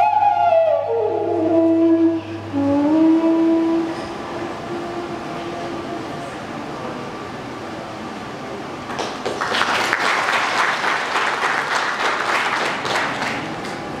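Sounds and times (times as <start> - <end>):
audience applauding: 8.9 - 14.0.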